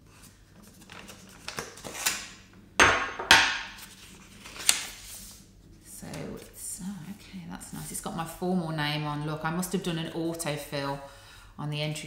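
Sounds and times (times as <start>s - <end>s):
letter opener slitting envelope: 4.4s - 5.0s
paper snapping: 4.5s - 5.0s.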